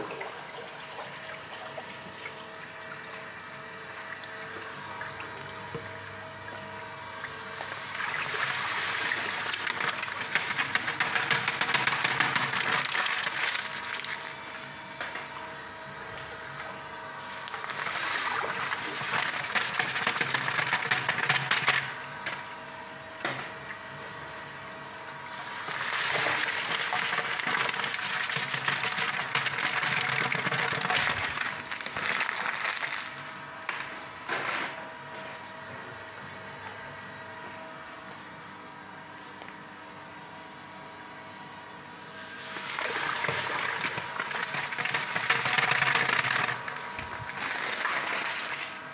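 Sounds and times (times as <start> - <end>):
mixing rod churning sugar water: 0.0 - 15.4, 17.2 - 22.5, 25.3 - 33.2, 42.2 - 48.9.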